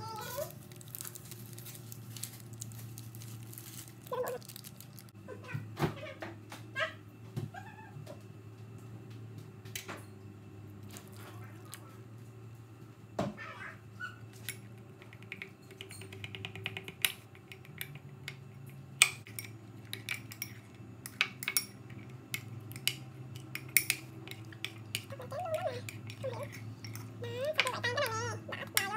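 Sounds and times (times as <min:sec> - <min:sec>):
spoon scraping: 0:19.3 - 0:28.9.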